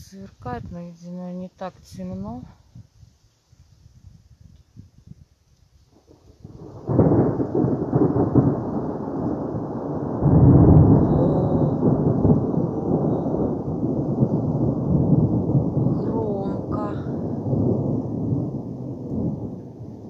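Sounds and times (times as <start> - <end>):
thunder rumbling: 5.9 - 20.0.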